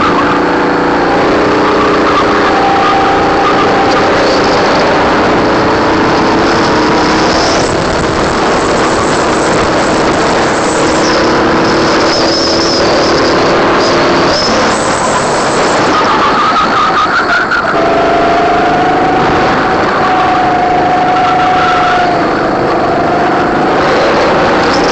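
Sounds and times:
go-kart engine at full throttle: 0:00.0 - 0:24.9.

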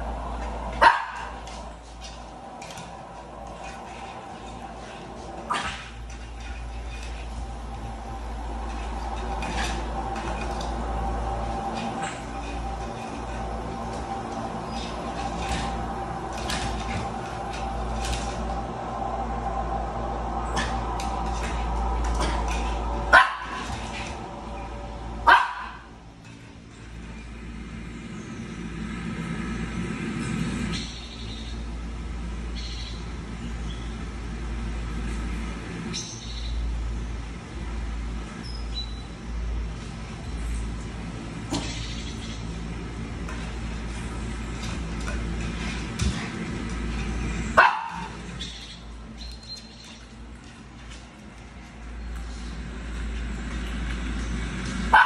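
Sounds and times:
steady low hum: 0:00.0 - 0:55.0
small dog barking: 0:00.8 - 0:01.4, 0:23.1 - 0:23.6, 0:25.2 - 0:25.9, 0:47.6 - 0:48.2.

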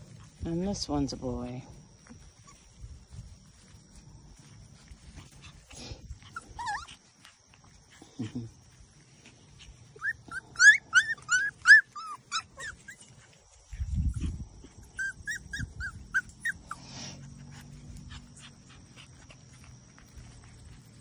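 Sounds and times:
puppies yelping: 0:02.1 - 0:03.6, 0:04.4 - 0:08.2, 0:09.1 - 0:13.6, 0:14.2 - 0:21.0.

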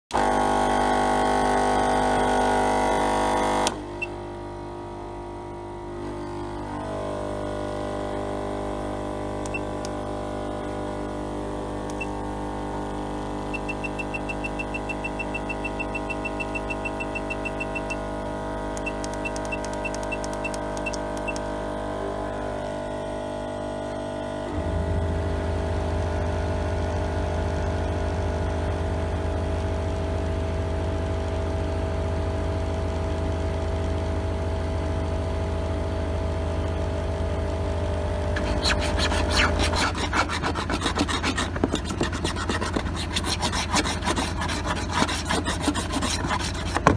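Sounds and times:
loud buzzing tone: 0:00.1 - 0:46.9
electric hum: 0:00.2 - 0:46.9
low motor drone: 0:05.3 - 0:46.9
control panel beeps: 0:09.5 - 0:10.0, 0:11.9 - 0:12.2, 0:13.4 - 0:18.1, 0:18.8 - 0:21.5.

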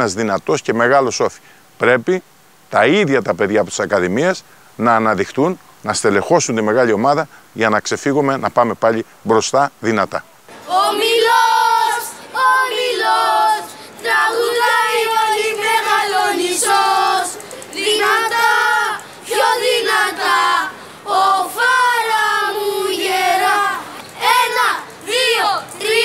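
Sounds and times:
boys singing in unison: 0:10.5 - 0:26.0.

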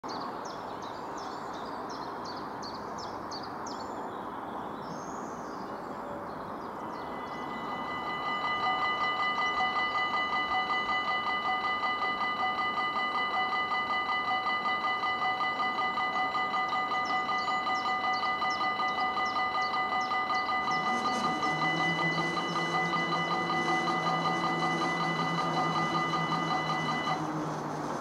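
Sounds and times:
bird chirping: 0:00.1 - 0:27.3
electronic crossing warning bell: 0:06.8 - 0:27.8.

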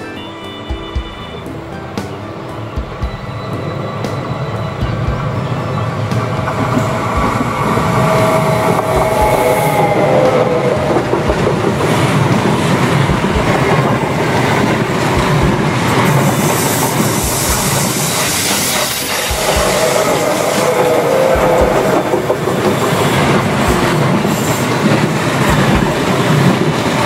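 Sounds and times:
wheel squeal on rail: 0:00.0 - 0:11.4, 0:16.0 - 0:25.6
train passing rumble: 0:00.0 - 0:27.0.

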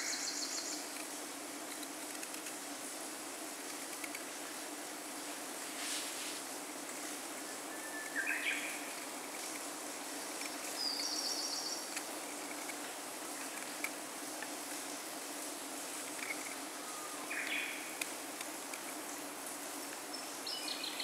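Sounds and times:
steady background hiss: 0:00.0 - 0:21.0
bird calls: 0:07.5 - 0:08.9, 0:10.8 - 0:11.9, 0:16.3 - 0:17.9.

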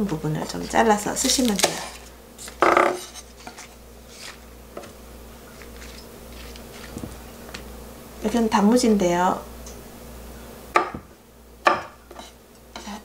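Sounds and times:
knife cutting on wooden board: 0:11.7 - 0:12.9.

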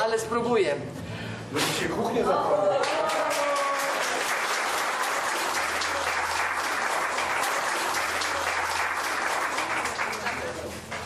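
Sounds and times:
small group applauding: 0:02.6 - 0:11.0.

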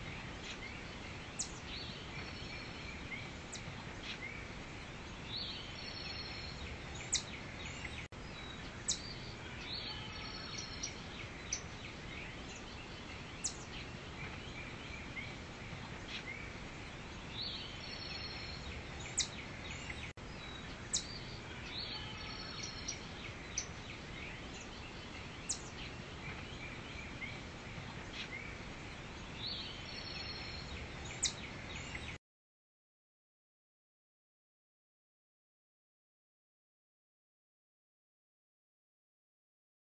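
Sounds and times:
forest background hiss: 0:00.0 - 0:32.2
bird chirps: 0:05.3 - 0:15.4, 0:17.3 - 0:28.6, 0:29.3 - 0:32.2.

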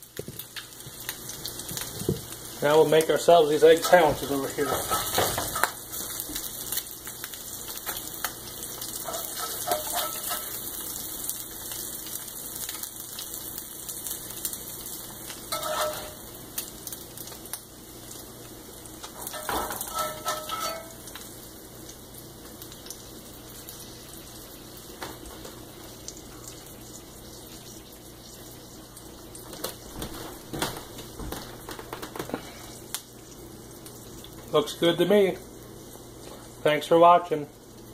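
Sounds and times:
grease sizzling in a skillet: 0:00.0 - 0:37.9
metal spatula scraping a pan: 0:09.0 - 0:10.7, 0:15.5 - 0:16.2, 0:19.3 - 0:21.0.

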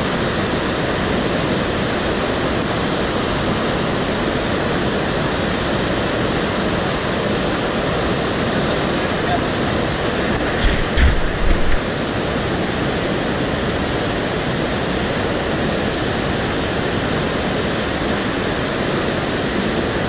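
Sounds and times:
whitewater river rushing: 0:00.0 - 0:20.0
low bumps: 0:10.2 - 0:11.9.

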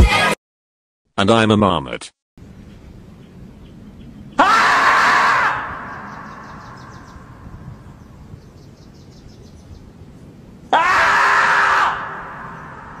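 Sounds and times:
person screaming: 0:04.4 - 0:05.9, 0:10.7 - 0:13.0.

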